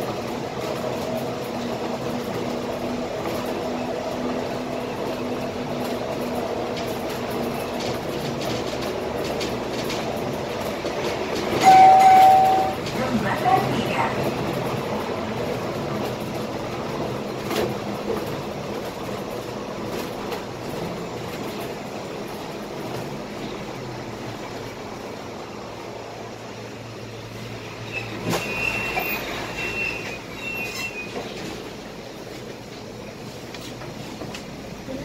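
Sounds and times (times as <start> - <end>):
bus engine and road rumble: 0.0 - 35.0
broken high squeal: 11.6 - 12.8, 27.8 - 31.3.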